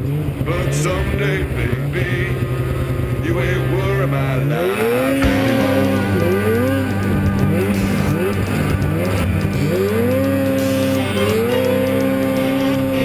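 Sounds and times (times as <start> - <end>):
snowmobile engines revving: 0.0 - 13.0
steady low engine drone: 0.0 - 13.0
music playing: 4.8 - 13.0.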